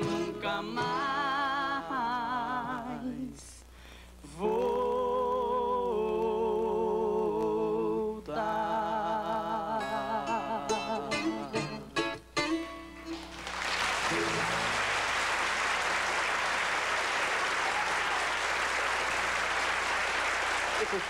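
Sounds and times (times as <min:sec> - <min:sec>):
men singing in harmony: 0:00.0 - 0:03.4, 0:04.4 - 0:12.0
acoustic guitars: 0:00.0 - 0:15.6.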